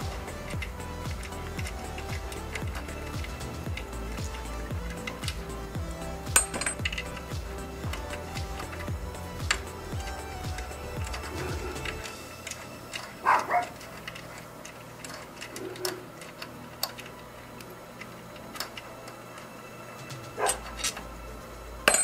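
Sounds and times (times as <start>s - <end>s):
tools and metal parts clicking: 6.3s - 21.1s.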